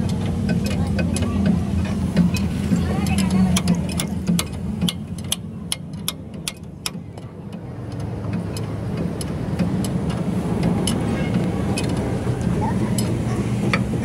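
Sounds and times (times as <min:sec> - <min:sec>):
wrench clicking on bolts: 0:03.1 - 0:07.0.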